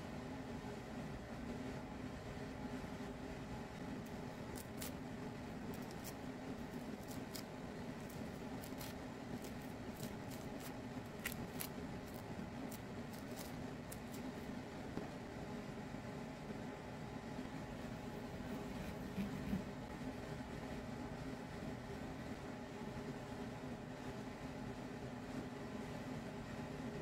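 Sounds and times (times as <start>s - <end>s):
low hum: 1.7s - 19.9s
peel tearing crackles: 4.0s - 14.6s.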